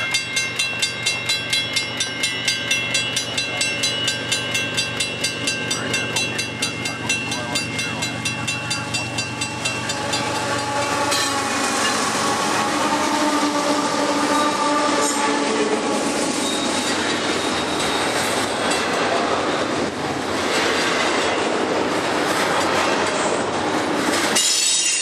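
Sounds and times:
level crossing bell ringing: 0.0 - 11.3
diesel locomotive: 0.0 - 25.0
freight train rumble: 0.0 - 25.0.

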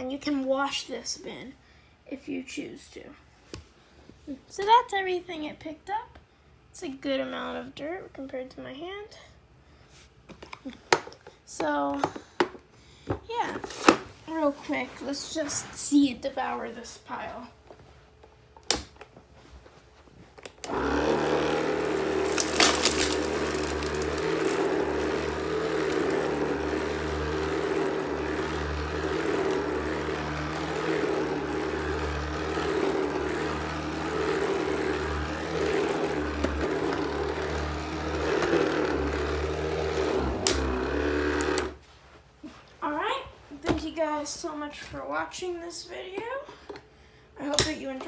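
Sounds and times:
cordless sweeper motor running: 20.6 - 41.8
debris crackling in sweeper: 21.3 - 36.4.

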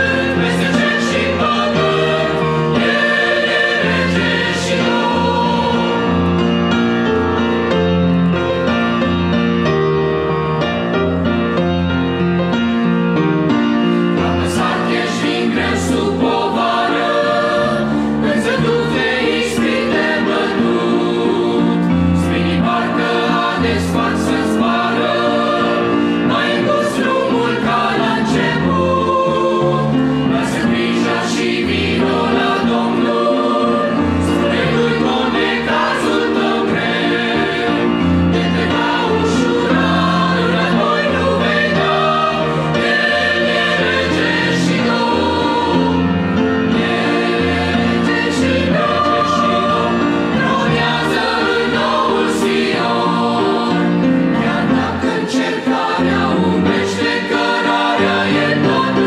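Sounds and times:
mixed choir singing a hymn: 0.0 - 9.4, 13.8 - 59.0.

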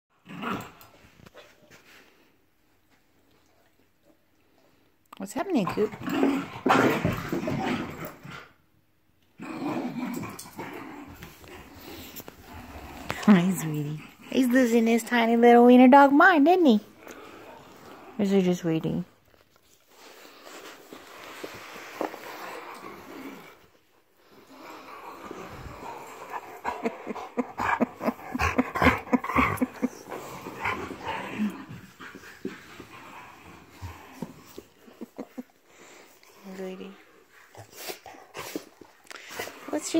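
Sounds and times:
small dog growling: 9.3 - 14.5, 24.4 - 35.4.

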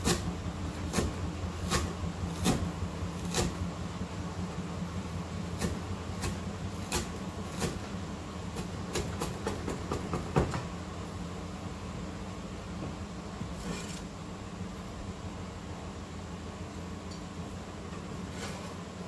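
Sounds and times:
knife chopping on cutting board: 0.0 - 0.3, 0.9 - 3.6, 5.6 - 7.9, 8.6 - 10.6
steady low hum: 0.0 - 19.0.

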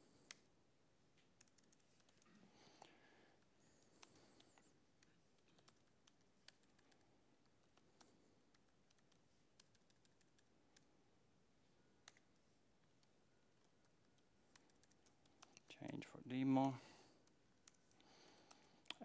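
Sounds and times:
faint keyboard keystrokes: 1.2 - 10.9.

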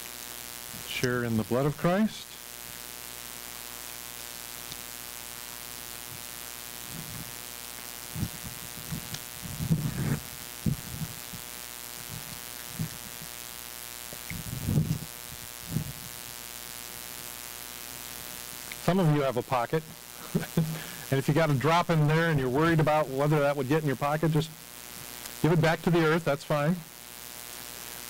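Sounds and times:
sound system electrical hum: 0.0 - 28.0
microphone thumps: 8.1 - 13.4, 14.2 - 16.1.

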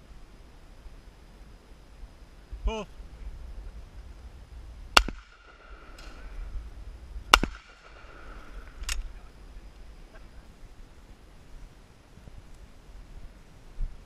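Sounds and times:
shotgun shots: 4.9 - 6.3, 7.3 - 9.0
faint crack: 5.0 - 6.5, 7.3 - 9.2.

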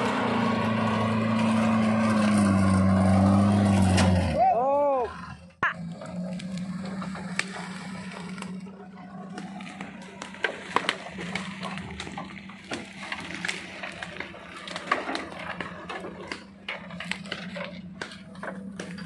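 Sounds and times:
engine running at low revs: 0.0 - 4.4, 5.0 - 19.0
branches snapping and scraping: 6.0 - 19.0.

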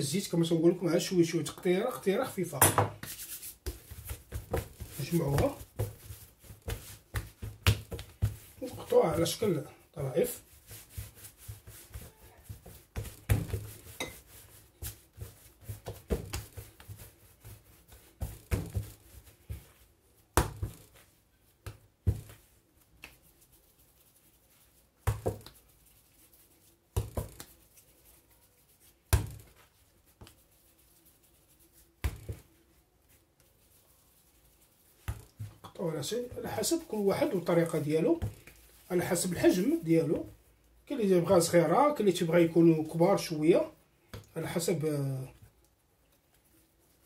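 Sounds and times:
dough knocks and slaps: 2.5 - 9.6, 10.2 - 23.4, 24.8 - 25.7, 26.9 - 27.9, 29.0 - 30.4, 32.0 - 32.6, 34.9 - 40.4
dough thuds on countertop: 2.6 - 9.4, 10.8 - 21.0, 21.6 - 23.2, 25.0 - 25.6, 26.9 - 27.5, 29.1 - 29.6, 32.0 - 32.5, 35.0 - 36.7.

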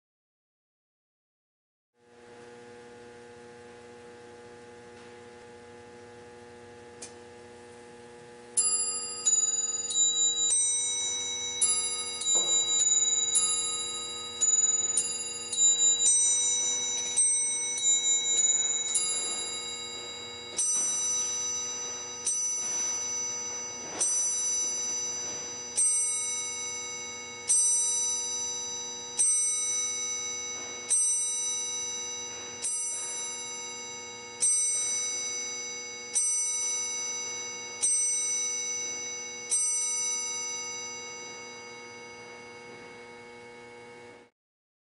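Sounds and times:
faint steady hum: 2.0 - 44.3
clock striking the hour: 8.6 - 42.5
clock bells chiming a tune: 8.6 - 43.8.

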